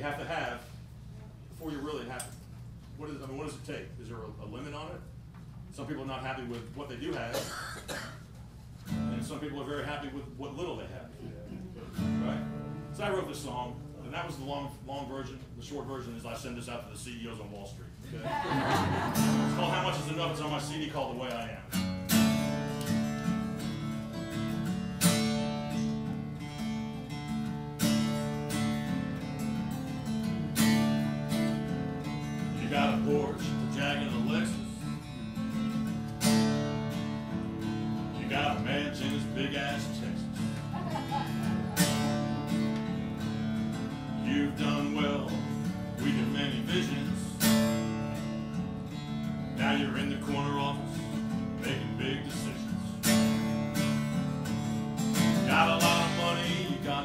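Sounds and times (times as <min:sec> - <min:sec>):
strummed acoustic guitar blues: 0:07.3 - 0:10.2, 0:11.6 - 0:15.3, 0:18.2 - 0:57.0.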